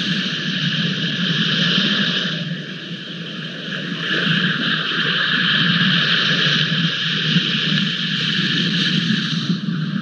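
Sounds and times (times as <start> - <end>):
wind and rain on microphone: 0.0 - 10.0.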